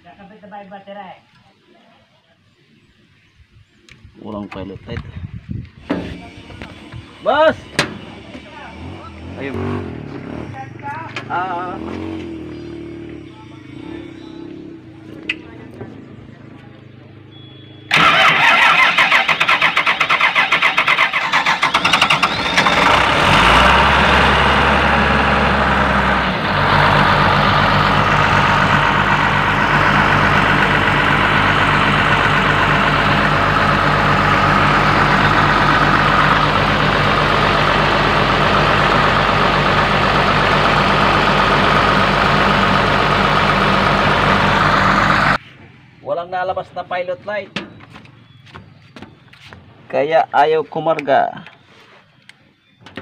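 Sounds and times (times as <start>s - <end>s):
diesel engine idling: 10.9s - 45.4s
starter motor cranking: 17.9s - 23.6s.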